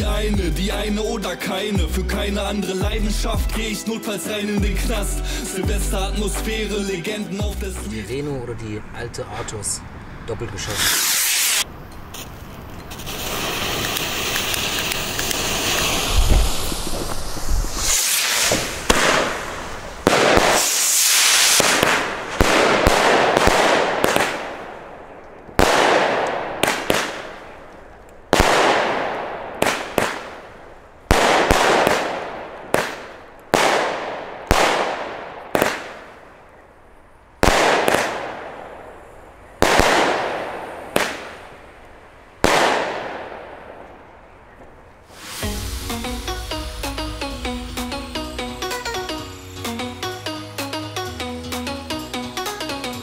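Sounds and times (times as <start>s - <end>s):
firework battery shots: 10.6s - 36.4s, 37.4s - 41.8s, 42.4s - 44.0s, 45.0s - 50.7s.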